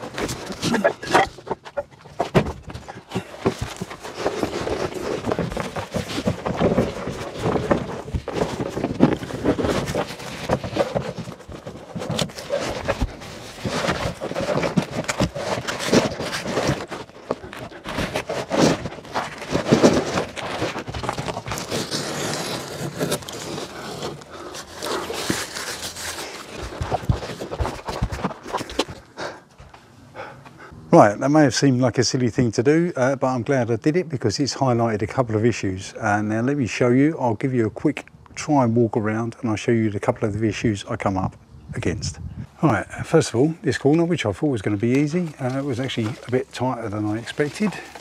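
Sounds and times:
membrane roll scraping: 0.0s - 29.0s, 43.8s - 48.0s
footsteps: 0.0s - 30.7s
person breathing: 29.1s - 30.8s.

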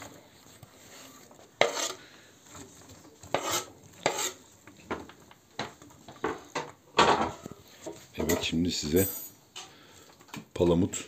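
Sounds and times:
board scraping on metal tray: 1.6s - 2.1s, 3.2s - 4.4s.

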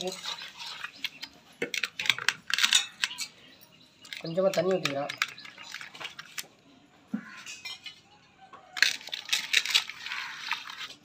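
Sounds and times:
hand squishing masala in a pot: 0.0s - 7.4s, 8.7s - 11.0s
water being poured: 9.0s - 11.0s.

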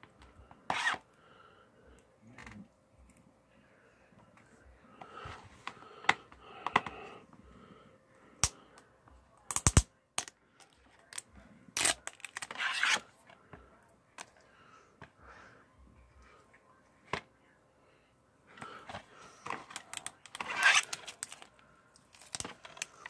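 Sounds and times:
fingernails scratching plastic: 11.8s - 13.1s, 20.2s - 21.2s
sticker scraping and tearing: 11.8s - 13.1s, 19.7s - 21.5s.

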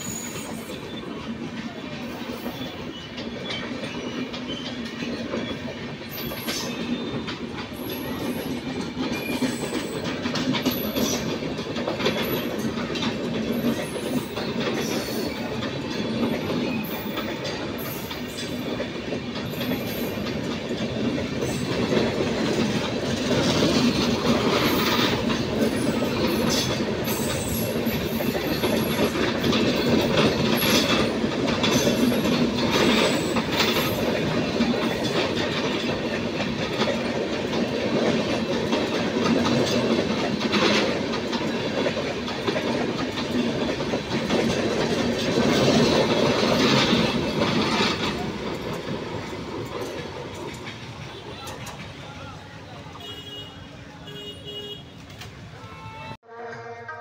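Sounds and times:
train wheels clattering over rail joints: 0.0s - 55.6s
high wheel squeals: 2.1s - 10.0s.

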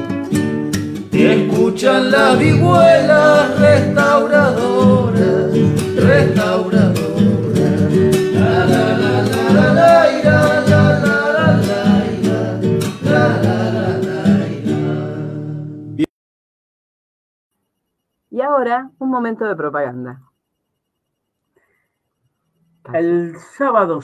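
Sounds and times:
acoustic guitar: 0.0s - 16.1s
person singing: 1.1s - 15.7s.

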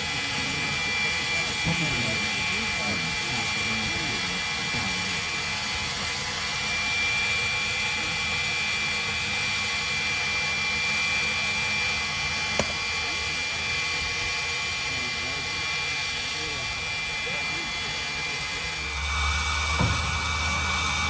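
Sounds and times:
ground power cart whine: 0.0s - 21.0s.

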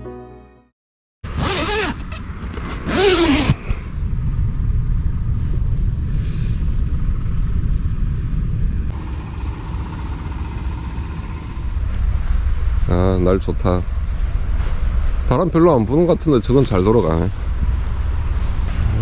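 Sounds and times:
wind buffeting microphone: 3.5s - 9.0s.

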